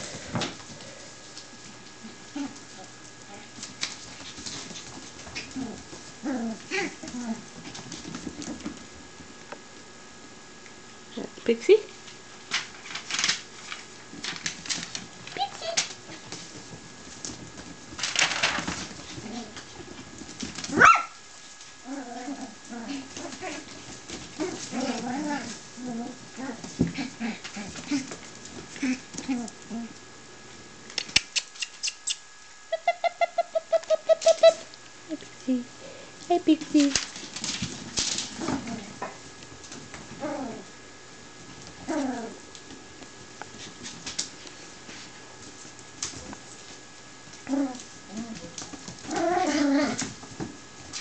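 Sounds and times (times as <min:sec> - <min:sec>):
puppy yelp: 0:20.7 - 0:21.2
claws scrabbling on vinyl floor: 0:36.8 - 0:40.6
puppy whines and grunts: 0:47.5 - 0:50.1.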